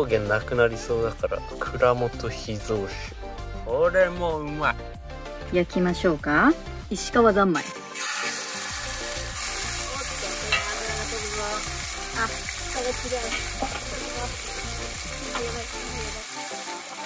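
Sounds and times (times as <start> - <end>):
pork sizzling in a pan: 7.6 - 17.0.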